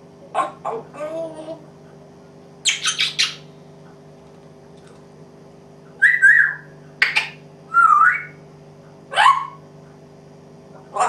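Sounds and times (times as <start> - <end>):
parrot squawking and calling: 0.3 - 1.6, 2.6 - 3.5, 6.0 - 8.4, 9.1 - 9.6.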